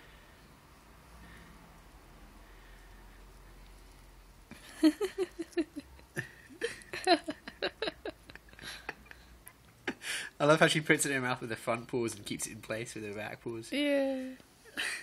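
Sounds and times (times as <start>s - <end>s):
person giggling: 4.5s - 10.0s, 14.7s - 15.0s.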